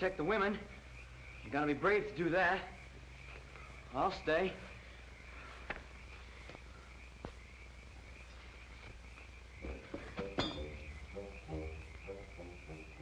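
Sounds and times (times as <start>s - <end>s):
frogs croaking: 0.0s - 13.0s
high-pitched insect chirring: 9.0s - 13.0s.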